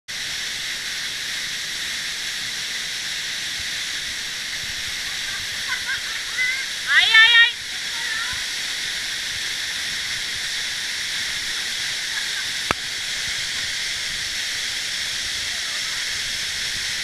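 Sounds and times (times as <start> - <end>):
waterfall rushing: 0.1 - 17.0.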